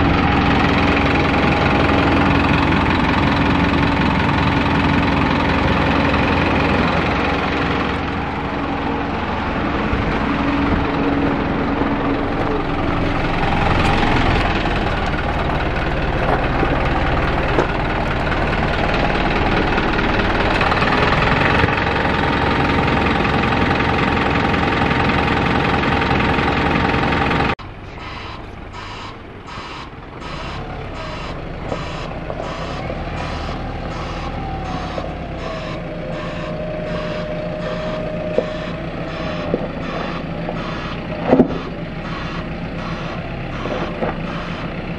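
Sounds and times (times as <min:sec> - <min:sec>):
diesel truck engine running: 0:00.0 - 0:44.9
reversing beeper: 0:27.6 - 0:44.9.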